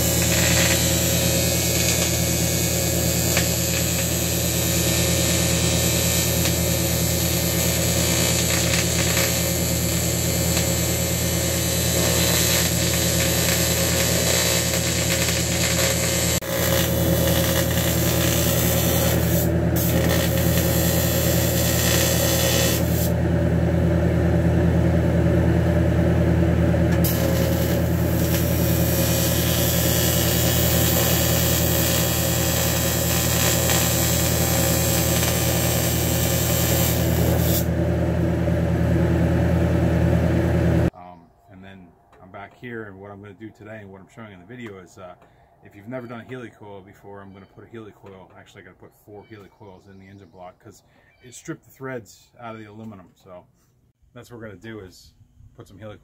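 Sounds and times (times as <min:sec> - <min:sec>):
welding arc buzzing: 0:00.0 - 0:40.9.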